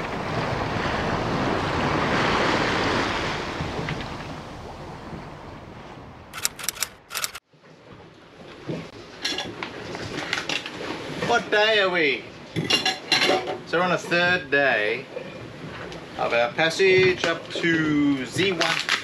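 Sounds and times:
wind and waves rushing: 0.0 - 7.4
sharp clicks: 6.3 - 7.4
pots and dishes clinking: 12.6 - 13.5.

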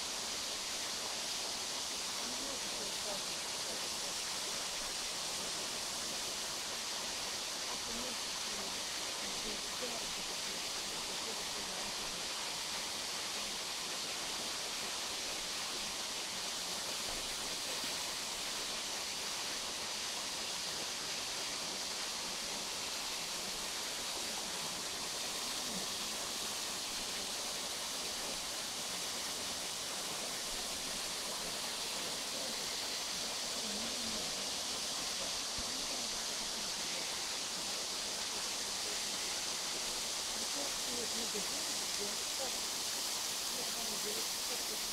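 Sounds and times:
waterfall hissing: 0.0 - 44.9.

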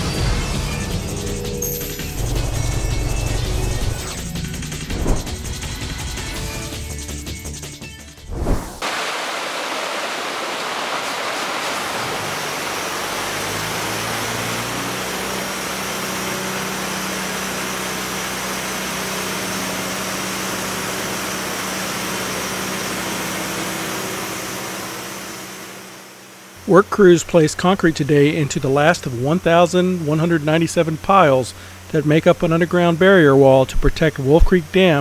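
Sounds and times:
truck engine hum: 0.0 - 7.6, 11.8 - 26.0
sharp hit: 0.5 - 5.9
concrete pouring down chute: 8.7 - 17.2.

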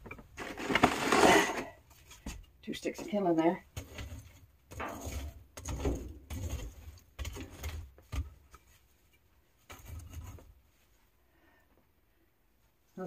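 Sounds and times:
wood scraping and knocking in stove: 0.0 - 8.9, 9.6 - 10.6.

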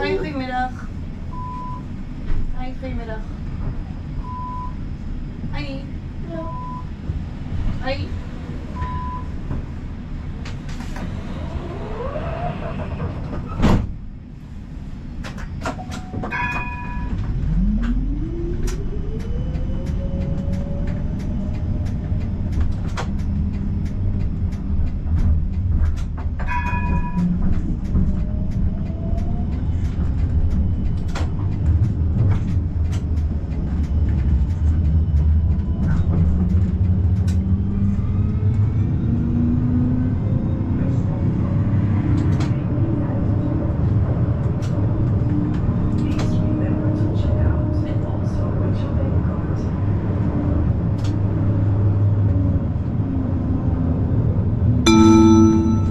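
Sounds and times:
tram wheels rumbling: 0.0 - 55.9
short chiming signal: 54.9 - 55.9.

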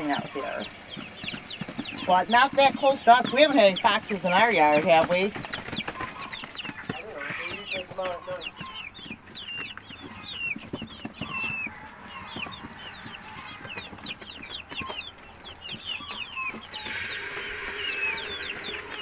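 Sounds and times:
chicks peeping: 0.0 - 19.0.

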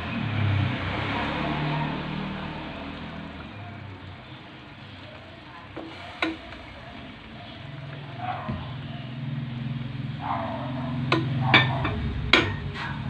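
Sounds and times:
wooden spatula knocking on pan: 11.0 - 12.7.

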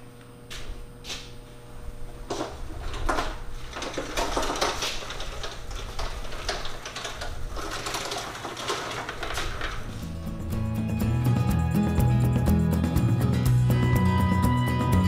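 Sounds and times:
cart casters rattling on concrete: 2.3 - 10.6.

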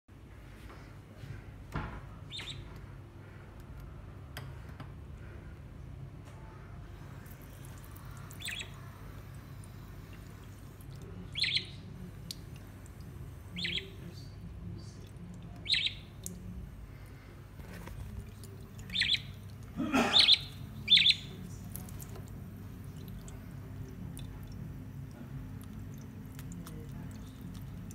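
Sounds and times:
budgerigar chirping: 2.3 - 2.7, 8.3 - 8.8, 11.3 - 11.8, 13.5 - 14.1, 15.6 - 16.3, 18.8 - 21.4.

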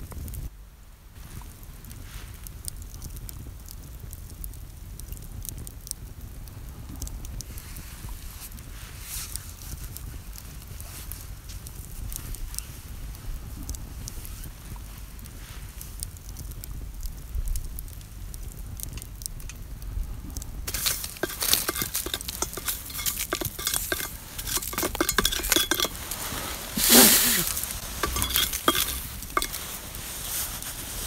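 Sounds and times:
embers crackling: 1.1 - 31.0
scraping embers off metal lid: 20.6 - 31.0
metal clinks: 20.7 - 29.9.

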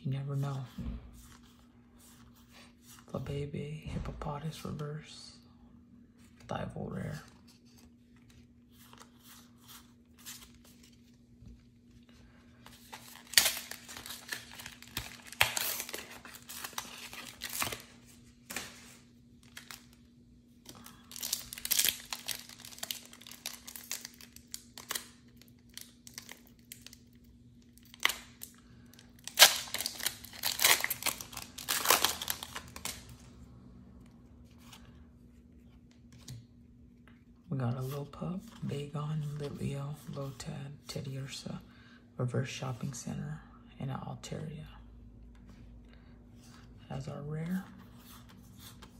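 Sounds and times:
foil wrapper tearing and crinkling: 12.9 - 17.9, 20.9 - 27.0, 29.2 - 33.2
light card handling: 34.4 - 36.6.

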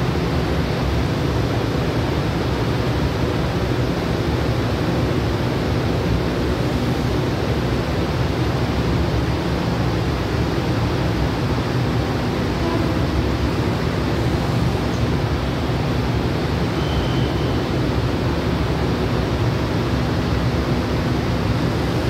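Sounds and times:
train station platform noise: 0.0 - 22.0.

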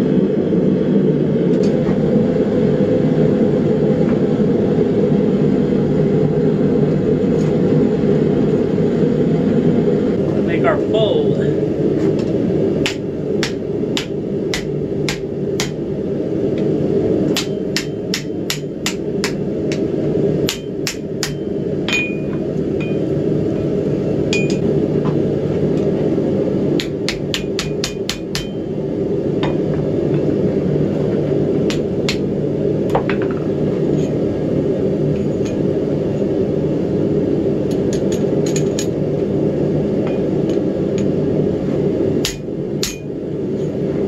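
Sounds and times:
steady low noise: 0.0 - 44.0
hammer striking steel on anvil: 12.8 - 15.8, 17.4 - 19.8, 20.5 - 23.0, 24.3 - 24.6, 26.8 - 28.7, 42.2 - 43.1.

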